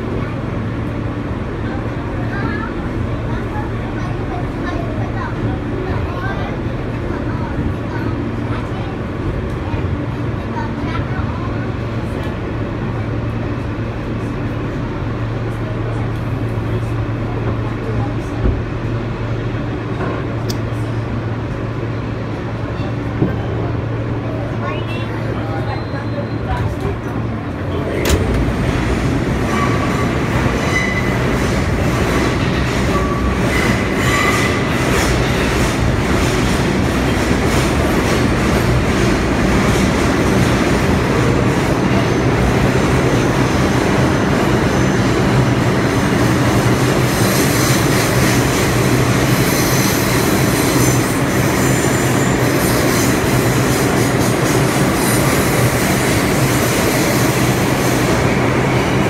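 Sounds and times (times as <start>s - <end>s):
subway train rumbling and rattling: 0.0s - 59.0s
high wheel squeals: 29.5s - 31.4s, 49.3s - 53.2s.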